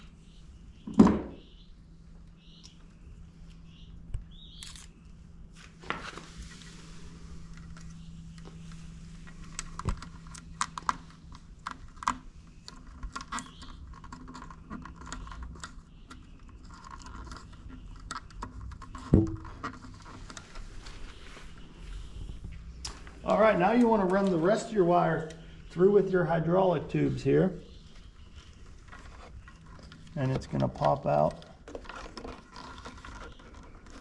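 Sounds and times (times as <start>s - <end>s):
knock: 19.2s - 19.4s.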